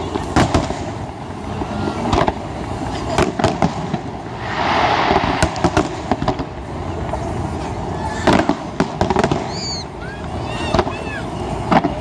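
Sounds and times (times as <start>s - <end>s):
low rumble: 0.0s - 9.0s
firework shells bursting: 3.1s - 6.7s
hiss: 4.2s - 6.2s.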